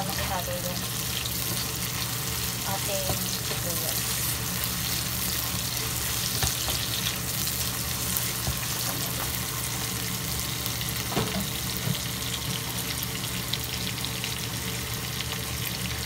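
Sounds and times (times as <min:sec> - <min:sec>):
food sizzling in oil: 0:00.0 - 0:16.0.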